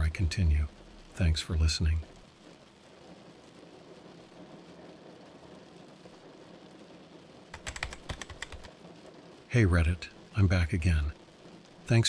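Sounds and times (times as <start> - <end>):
heavy rain on a car roof: 0.0 - 12.0
fast keyboard typing: 7.5 - 8.7.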